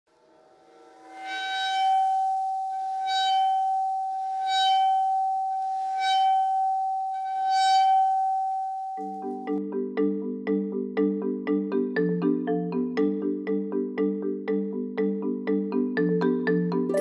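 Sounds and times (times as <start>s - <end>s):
metal plate ringing high tone: 0.2s - 9.5s.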